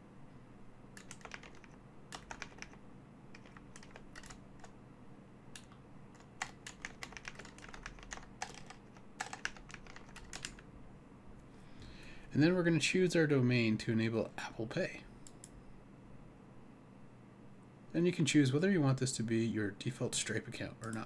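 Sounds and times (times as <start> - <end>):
faint low hum: 0.0 - 21.0
keyboard typing clicks: 1.0 - 4.7, 5.6 - 10.6.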